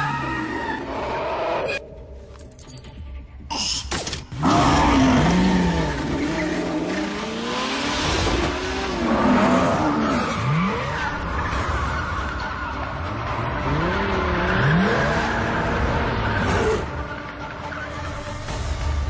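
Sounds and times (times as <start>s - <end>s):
car tyres skidding and squealing: 0.0s - 1.8s, 4.5s - 18.6s
car engine revving: 4.4s - 17.1s.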